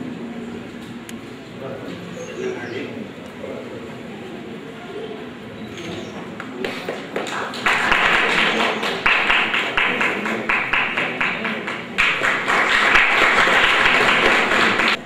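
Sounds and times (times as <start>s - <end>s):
audience applauding: 6.5s - 15.0s.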